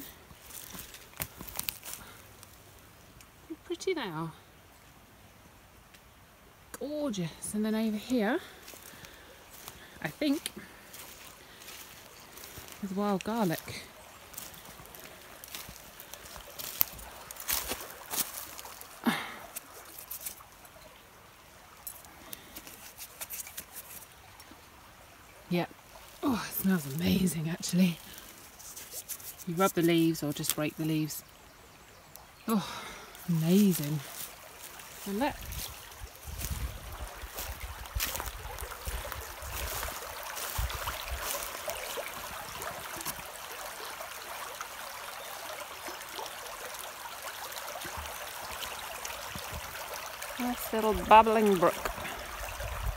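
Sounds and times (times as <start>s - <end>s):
leaves rustling and crackling: 0.0s - 4.9s, 5.7s - 52.9s
brook babbling: 0.0s - 52.9s
stream trickling: 0.0s - 52.9s.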